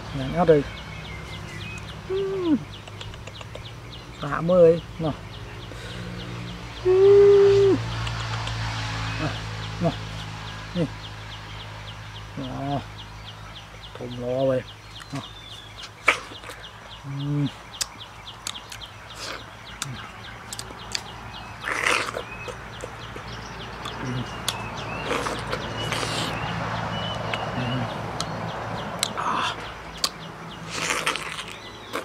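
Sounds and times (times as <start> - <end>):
wet mouth clicks and smacks: 2.8 - 3.7, 8.0 - 8.7, 17.8 - 18.9, 19.8 - 23.0, 23.8 - 26.4, 30.0 - 30.2
slurping: 21.6 - 22.5, 23.8 - 26.5, 30.7 - 32.0.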